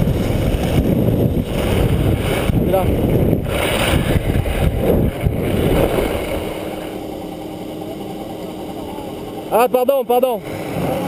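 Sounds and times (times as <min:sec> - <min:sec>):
skis sliding over snow: 0:00.0 - 0:07.0
wind on microphone: 0:00.0 - 0:07.3.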